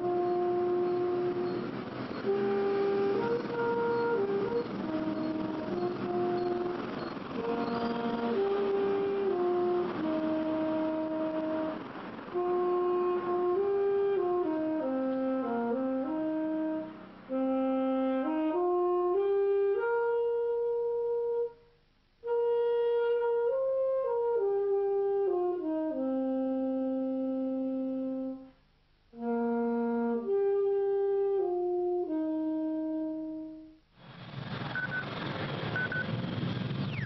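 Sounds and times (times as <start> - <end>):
saxophone slow melody: 0.0 - 33.8
hiss: 34.0 - 37.0
short electronic beeps: 34.7 - 35.1, 35.7 - 36.1.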